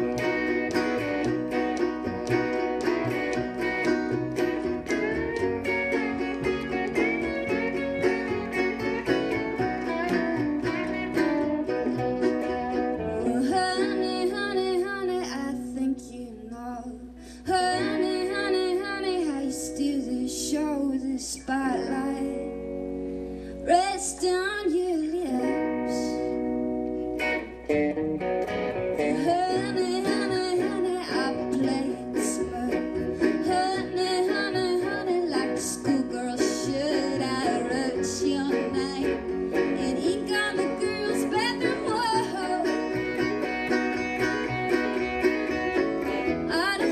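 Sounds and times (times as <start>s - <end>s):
electric guitar: 0.0s - 16.2s, 17.0s - 46.9s
strummed guitar: 0.0s - 16.2s, 17.2s - 46.9s
upright bass: 0.0s - 24.4s, 25.0s - 46.9s
woman singing: 13.1s - 22.6s, 23.6s - 26.5s, 29.0s - 43.2s, 46.2s - 46.9s.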